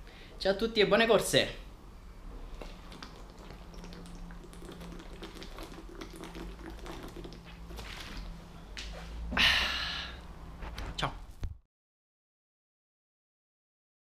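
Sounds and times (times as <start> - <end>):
faint steady hum: 0.0 - 11.6
person gulping water: 2.4 - 8.3.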